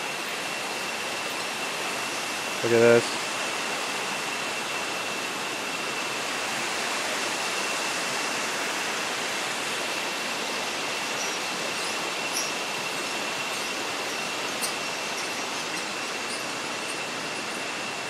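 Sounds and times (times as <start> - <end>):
stream rushing: 0.0 - 18.0
thin high tone: 10.3 - 18.0.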